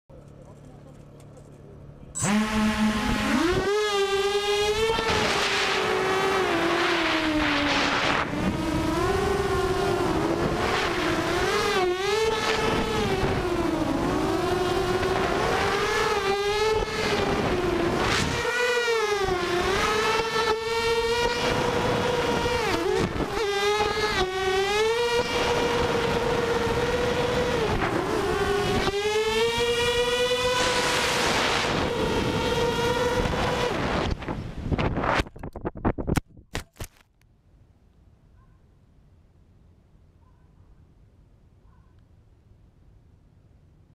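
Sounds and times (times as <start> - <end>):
drone motors whining: 0.2 - 34.3.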